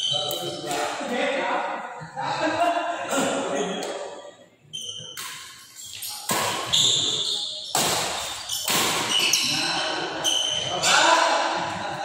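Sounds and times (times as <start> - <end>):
high squeak: 4.7 - 9.6
rackets hitting shuttlecock: 5.1 - 6.8, 7.7 - 9.5.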